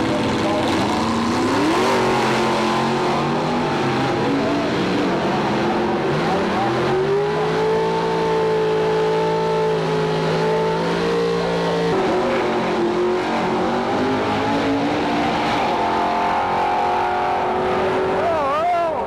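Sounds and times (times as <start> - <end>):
car engines revving hard: 0.0 - 19.0.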